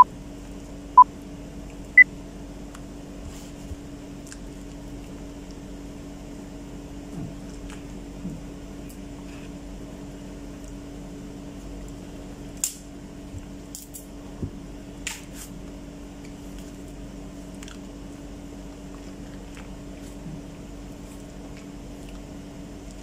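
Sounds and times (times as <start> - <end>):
steady background hum: 0.0 - 23.0
wet chewing: 4.2 - 5.7, 7.3 - 8.0, 17.4 - 18.0, 18.6 - 23.0.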